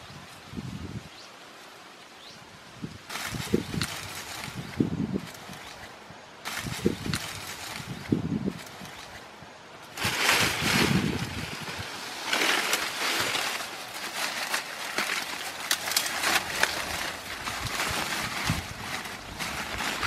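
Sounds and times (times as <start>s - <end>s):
dry leaves rustling and crackling: 3.1s - 5.8s, 6.4s - 9.2s, 9.8s - 20.0s.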